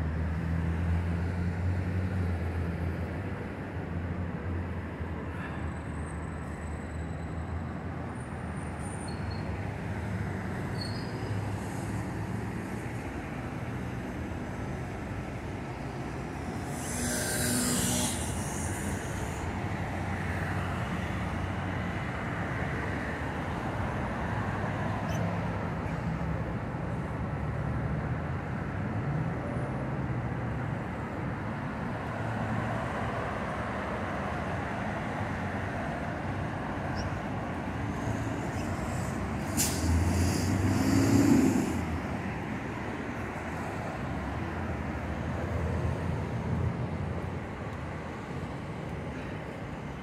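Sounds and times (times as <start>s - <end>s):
road traffic noise: 0.0s - 50.0s
loud vehicle passing: 16.0s - 21.0s, 36.6s - 47.1s.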